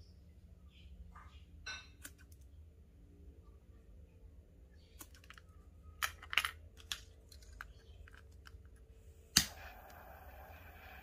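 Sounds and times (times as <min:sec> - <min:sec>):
torch flame hissing: 0:09.3 - 0:11.0.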